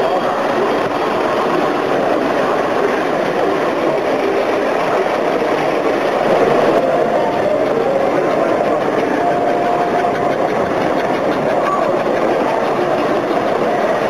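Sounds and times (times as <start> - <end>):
electric motors humming: 0.0 - 14.0
model train wheels rumbling on rails: 0.0 - 14.0.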